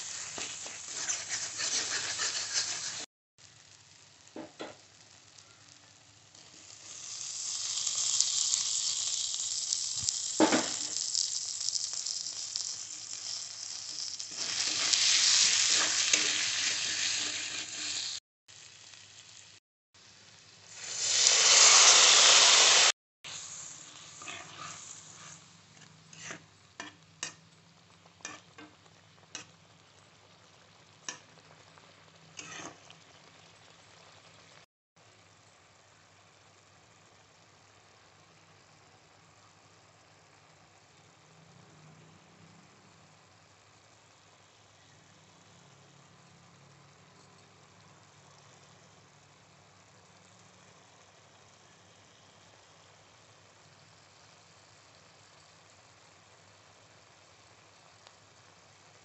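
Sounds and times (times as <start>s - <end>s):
onion and potato sizzling in oil: 0.0s - 59.0s
spatula scraping and tapping pan: 0.1s - 3.1s, 24.2s - 27.4s, 28.2s - 29.5s, 32.4s - 33.0s.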